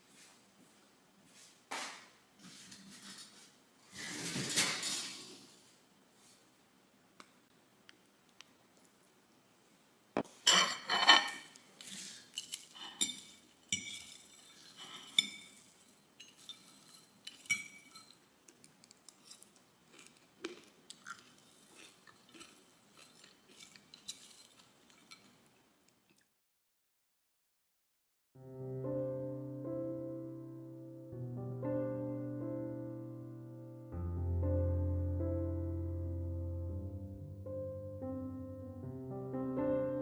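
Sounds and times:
fork scraping a ceramic plate: 10.5 - 18.2.

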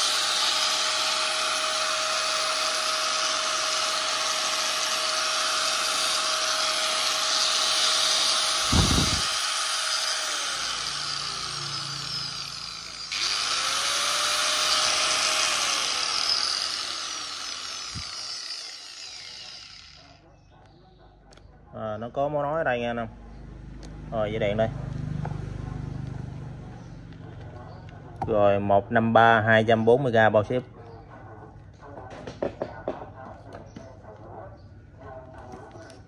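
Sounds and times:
angle grinder whining: 0.0 - 20.2.

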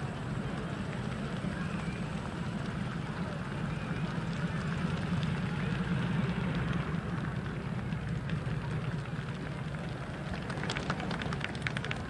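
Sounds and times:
outdoor crowd noise: 0.0 - 12.0
hand clapping: 8.3 - 12.0.

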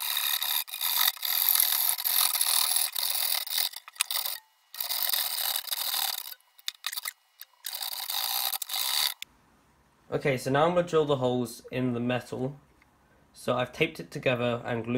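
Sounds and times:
hacksaw cutting sheet metal: 0.0 - 9.2.

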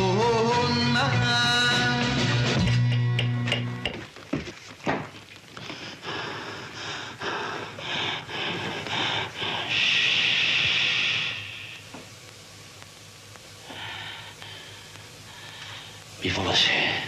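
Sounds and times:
person panting hard: 5.6 - 11.7, 13.7 - 16.0.

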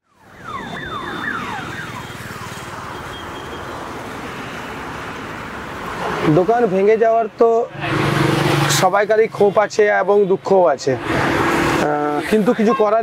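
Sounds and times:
road traffic passing: 0.0 - 13.0.

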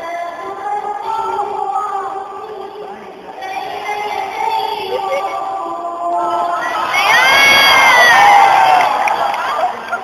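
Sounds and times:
person singing: 0.0 - 7.2.

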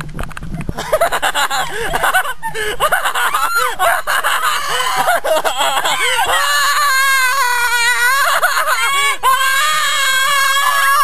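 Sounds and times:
high-pitched voice crying out: 2.8 - 11.0.

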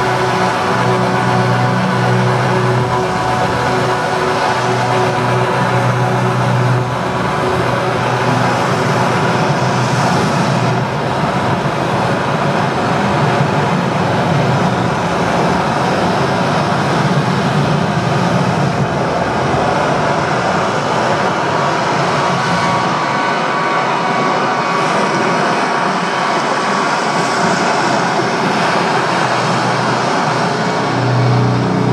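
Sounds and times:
low hum: 0.0 - 22.8, 28.4 - 31.9
dense rushing rumble: 0.0 - 22.9, 27.9 - 31.9.

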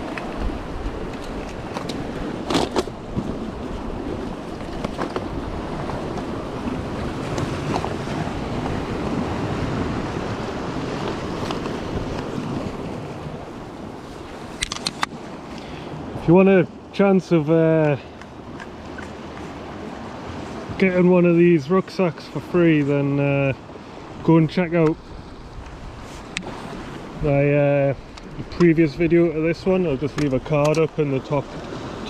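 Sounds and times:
wind buffeting microphone: 0.0 - 16.3, 23.2 - 32.0
surf washing against rocks: 0.0 - 32.0.

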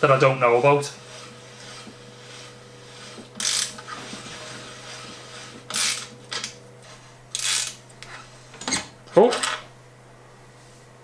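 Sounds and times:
ratchet wrench clicking: 3.4 - 3.7, 7.3 - 7.8.

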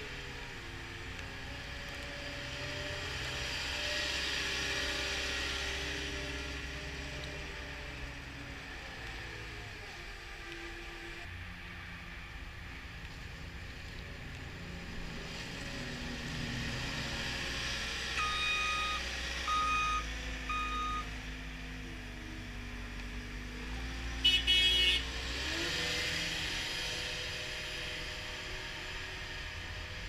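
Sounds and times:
diesel loader engine running: 15.3 - 25.0
back-up alarm beeping: 18.2 - 21.1.

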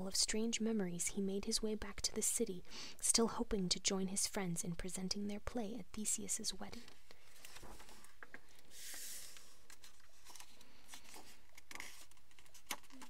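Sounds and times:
book page turning: 6.8 - 13.0
paper rustling and tapping: 6.9 - 8.6, 9.6 - 13.0.

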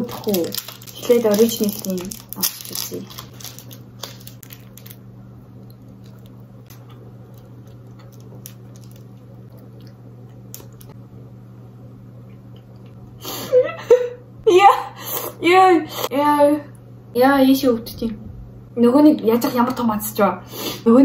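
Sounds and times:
steady low hum: 0.0 - 21.0
wet chewing: 0.1 - 10.9.

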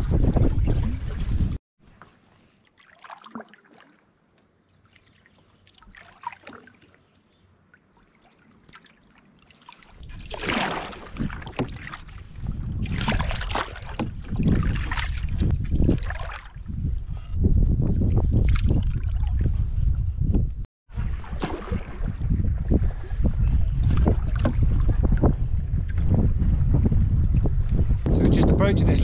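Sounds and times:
wind buffeting microphone: 0.0 - 1.6, 10.0 - 29.0
paddle splashing water: 0.0 - 16.6, 20.9 - 26.2.

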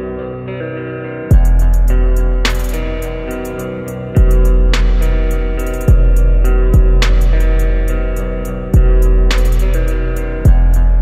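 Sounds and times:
deep kick drum: 1.3 - 2.8, 4.2 - 7.8, 8.8 - 9.8, 10.5 - 11.0
sustained synth chords: 1.3 - 11.0
fast hi-hat ticks: 1.4 - 10.3
snare hit: 2.4 - 3.0, 4.7 - 6.0, 7.0 - 7.6, 9.3 - 9.8.

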